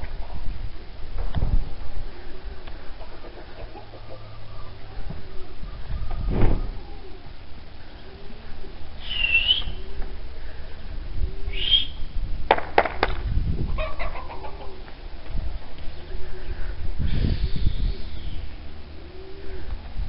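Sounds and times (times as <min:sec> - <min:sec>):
high bird calls: 0:07.9 - 0:10.2, 0:11.4 - 0:12.1, 0:15.8 - 0:19.4.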